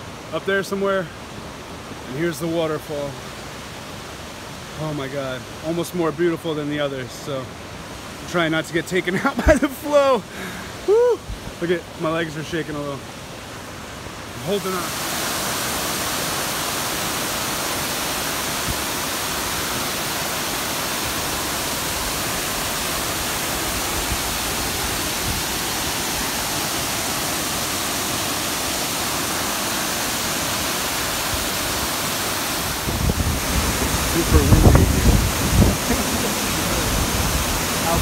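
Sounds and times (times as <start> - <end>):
stream running over stones: 0.0 - 38.0
waterfall roaring onto rocks: 0.0 - 38.0.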